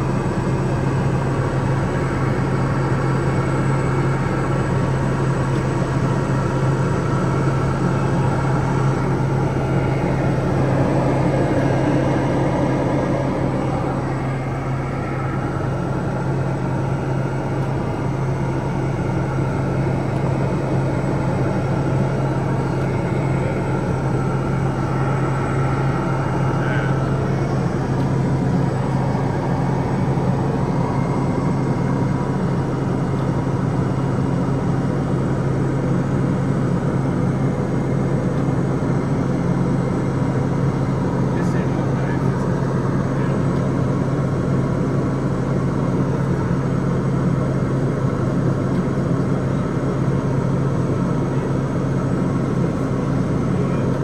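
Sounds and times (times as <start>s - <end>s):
turboprop engine droning: 0.0s - 54.0s
airflow rushing: 7.8s - 18.5s, 20.3s - 32.6s.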